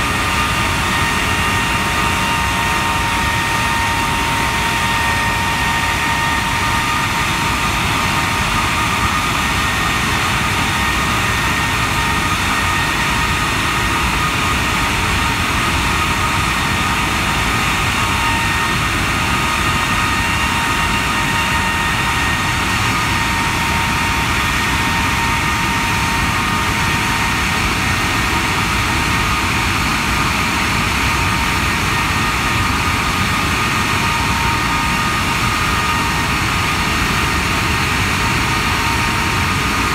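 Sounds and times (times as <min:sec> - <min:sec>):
jet engine running at high power: 0:00.0 - 0:39.9
steady whining tones: 0:00.0 - 0:39.9.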